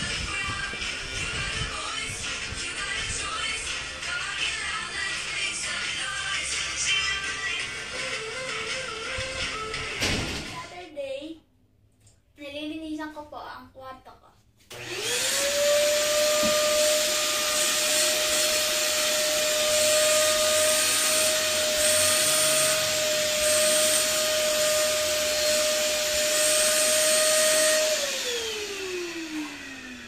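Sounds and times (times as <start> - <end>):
vacuum cleaner motor whine: 14.7 - 30.0.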